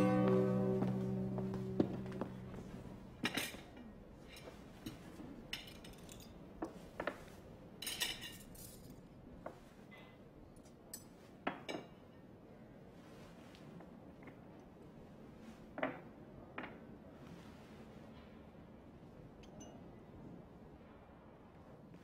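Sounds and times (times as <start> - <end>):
song: 0.0 - 3.2
crockery and cutlery clinking: 0.0 - 6.4, 7.8 - 9.0.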